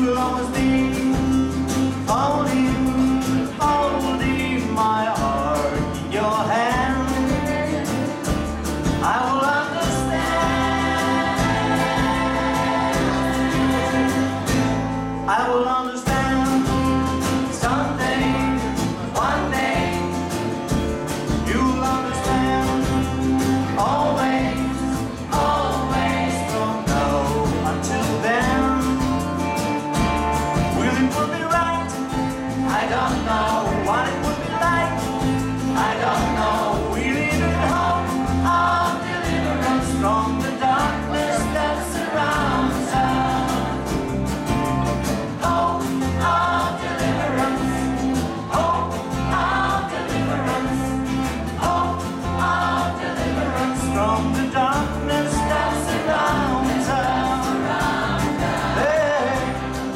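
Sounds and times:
acoustic guitar: 0.0 - 59.9
women's choir singing: 9.6 - 15.0, 17.4 - 20.7, 22.6 - 28.2, 32.5 - 44.6, 45.2 - 54.5, 55.2 - 59.9.

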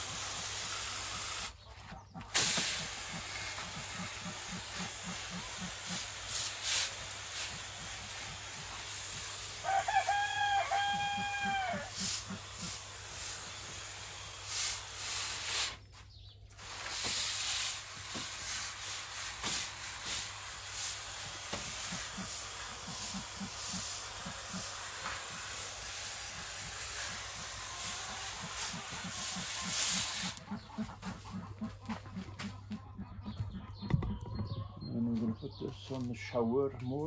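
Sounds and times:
hens clucking softly: 0.8 - 12.9, 21.8 - 37.0
rooster crowing: 9.6 - 12.0.

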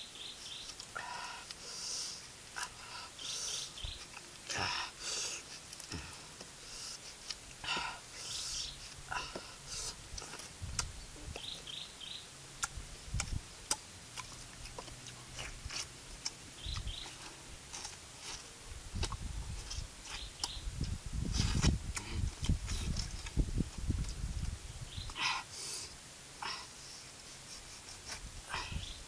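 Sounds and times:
bird chirping: 0.0 - 0.8, 3.2 - 4.2, 11.0 - 12.3, 16.6 - 17.3, 20.1 - 20.8, 24.7 - 25.3, 28.5 - 29.0
person chewing juicy fruit: 12.6 - 20.6.

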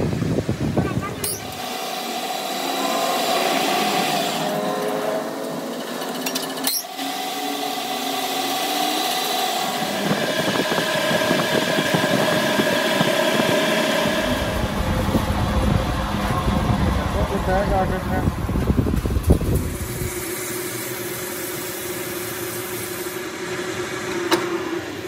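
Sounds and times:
metal lathe humming: 1.2 - 25.0
low rumble: 14.1 - 20.2.

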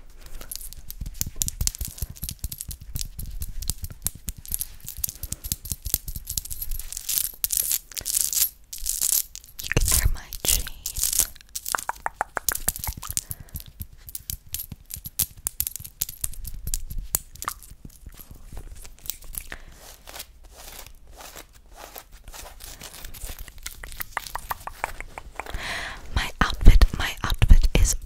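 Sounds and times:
crisp clicks and crackles: 0.1 - 28.0
mouth sounds: 9.6 - 11.1, 11.8 - 13.1, 23.5 - 28.0.

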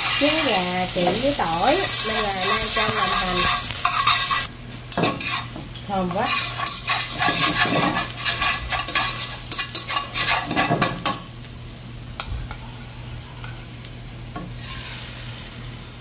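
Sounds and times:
chopsticks scraping a pan: 0.0 - 11.2
onion sizzling in oil: 0.0 - 16.0.

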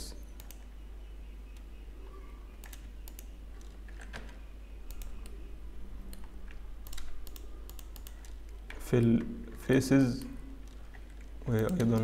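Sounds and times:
low electrical hum: 0.0 - 12.0
keyboard and mouse clicking: 0.4 - 0.7, 2.6 - 5.4, 6.0 - 9.3, 10.1 - 12.0.

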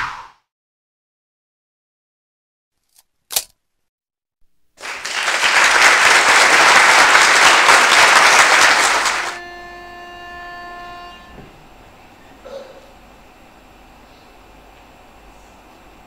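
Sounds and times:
audience applauding: 4.8 - 9.4
steady held tones: 7.8 - 13.8.

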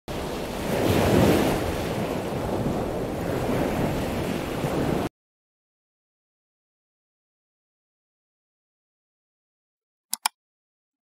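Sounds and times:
ocean wave breaking: 0.1 - 5.1.

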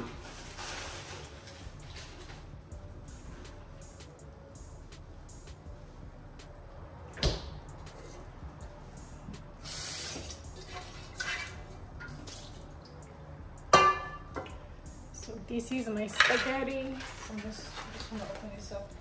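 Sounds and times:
short hiss: 9.6 - 10.4
metal cooking pot clanking: 10.6 - 12.2, 13.7 - 14.5, 16.1 - 17.2.

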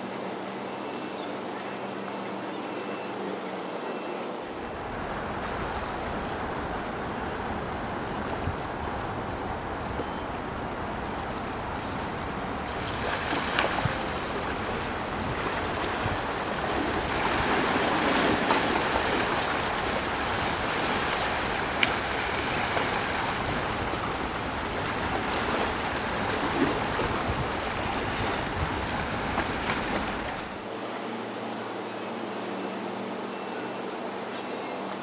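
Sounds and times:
waves and churning water: 0.0 - 35.0.

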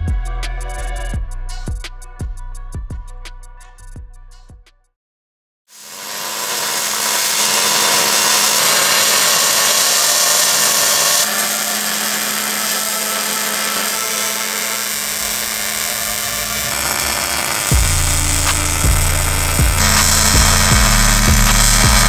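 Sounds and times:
welding arc crackling: 5.7 - 22.0
low hum: 5.8 - 22.0.

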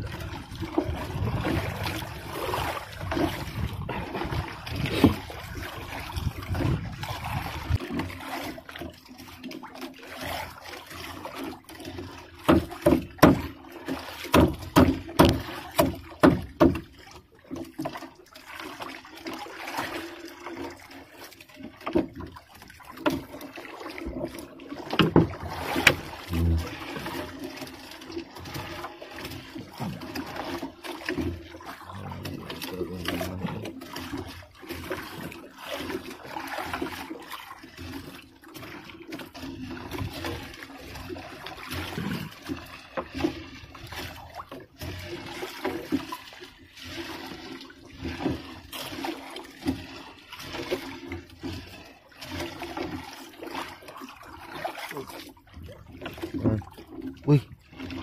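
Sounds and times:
wet net hauled by hand: 0.0 - 8.7, 22.9 - 58.0
water trickling and splashing: 0.0 - 58.0
knocks and thuds against hull: 0.5 - 8.2, 12.4 - 18.0, 21.8 - 23.4, 24.0 - 27.2, 29.6 - 34.4.

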